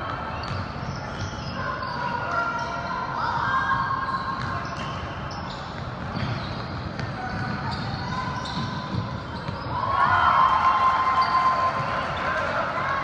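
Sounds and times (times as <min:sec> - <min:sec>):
voices of players and spectators: 0:00.0 - 0:13.0
basketball bouncing on court: 0:00.1 - 0:01.4, 0:05.7 - 0:09.8.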